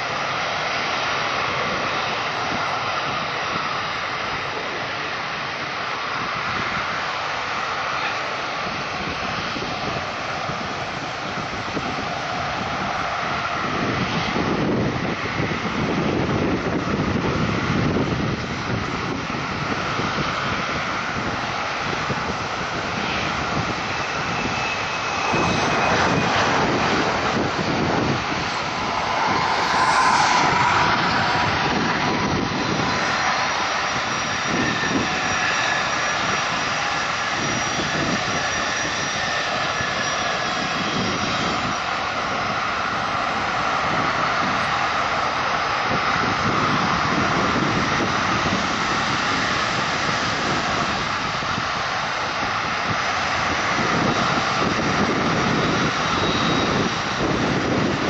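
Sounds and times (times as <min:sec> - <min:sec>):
jet engines running: 0:00.0 - 0:58.0
cars and trucks passing: 0:09.9 - 0:38.2.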